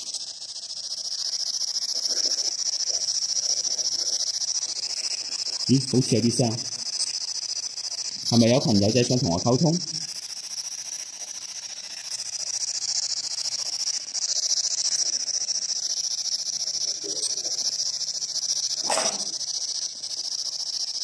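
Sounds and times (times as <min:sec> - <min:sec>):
radio static hiss: 0:02.0 - 0:07.0
short sharp radio burst: 0:18.8 - 0:19.4.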